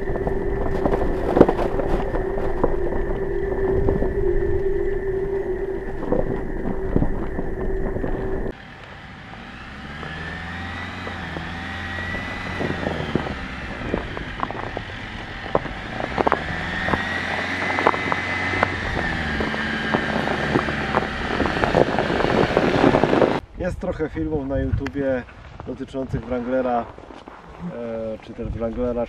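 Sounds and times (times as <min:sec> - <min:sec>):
ice cracking: 0:00.0 - 0:08.5
tyres crunching through snow: 0:00.0 - 0:23.4, 0:24.9 - 0:29.0
vehicle drivetrain hum and whine: 0:00.0 - 0:23.4.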